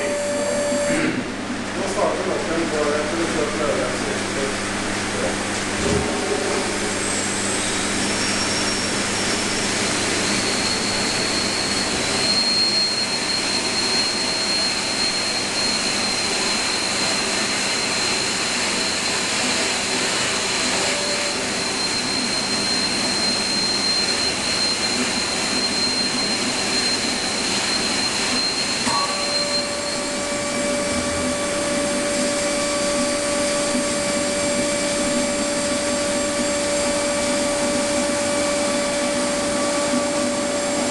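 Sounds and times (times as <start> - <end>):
thin high whine: 0.0 - 40.9.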